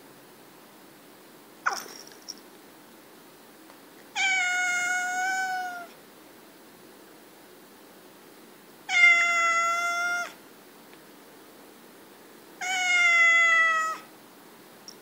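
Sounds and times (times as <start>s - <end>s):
cat meowing: 4.2s - 6.0s, 8.9s - 10.4s, 12.6s - 14.1s.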